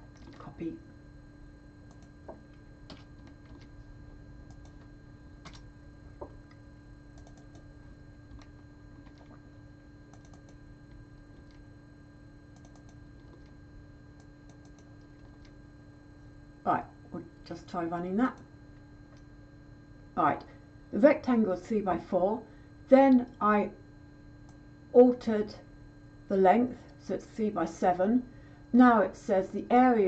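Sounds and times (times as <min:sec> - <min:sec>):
low electrical hum: 0:00.0 - 0:30.0
keyboard typing: 0:01.9 - 0:02.1, 0:04.4 - 0:05.6, 0:07.1 - 0:07.7, 0:10.1 - 0:11.6, 0:12.5 - 0:13.5, 0:14.6 - 0:15.5.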